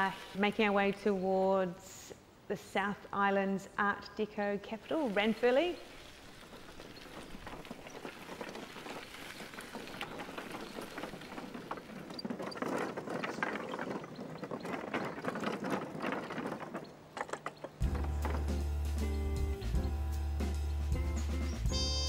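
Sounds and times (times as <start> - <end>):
bicycle tyres rattling over planks: 5.0 - 18.9
trailer wheel knocking on boards: 6.1 - 18.7.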